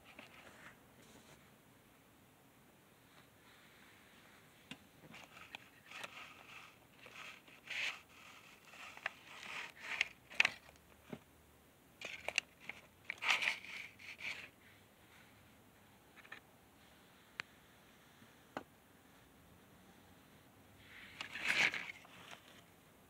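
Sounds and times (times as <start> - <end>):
handling noise rustling: 20.8 - 22.7.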